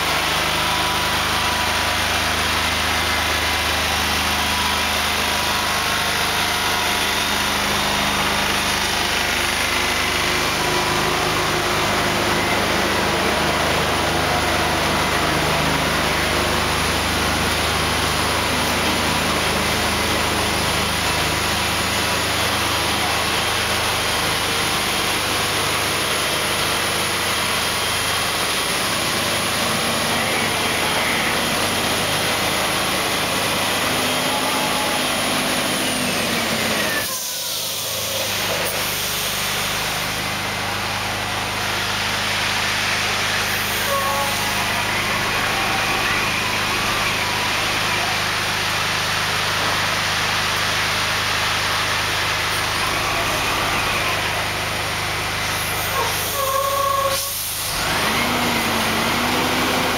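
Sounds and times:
truck diesel engine running: 0:00.0 - 0:59.9
hiss: 0:36.9 - 0:40.2, 0:55.4 - 0:59.9.

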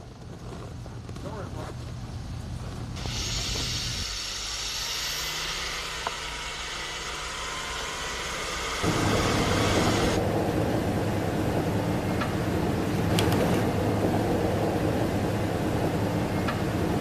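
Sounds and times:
hiss of spraying snow: 0:03.0 - 0:10.2
vehicle engine running: 0:05.9 - 0:17.0
heavy vehicle engine rumble: 0:08.3 - 0:17.0.

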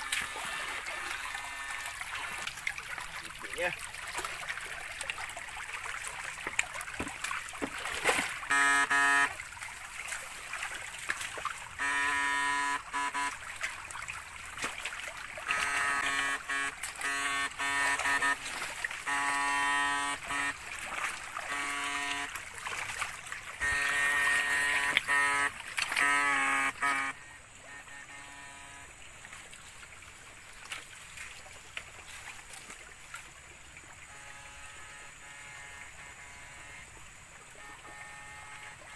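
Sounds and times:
electrical rig buzzing: 0:00.0 - 0:02.4, 0:08.0 - 0:09.4, 0:11.8 - 0:13.4, 0:15.4 - 0:22.4, 0:23.6 - 0:29.0, 0:34.1 - 0:38.9
stream trickling and splashing: 0:00.0 - 0:38.9.

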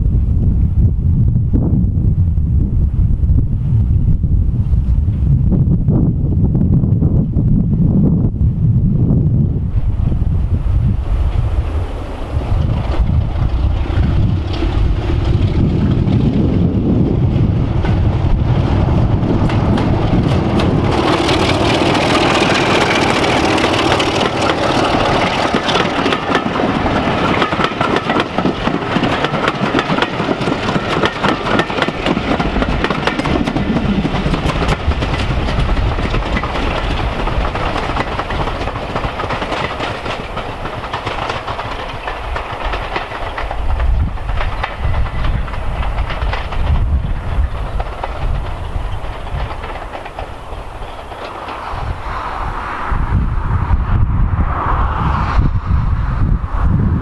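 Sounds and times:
wind buffeting microphone: 0:00.0 - 0:57.0
diesel locomotive engine running: 0:08.8 - 0:54.5
train wheels clicking on track: 0:10.9 - 0:52.6.

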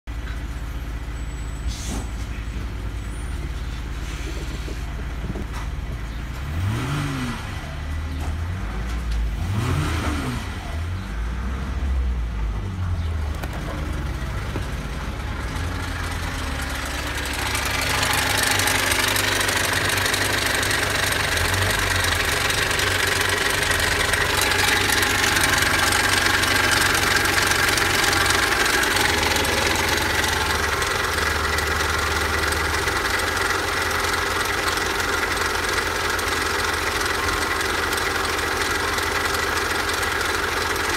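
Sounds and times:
car engine idling: 0:12.2 - 0:40.9.

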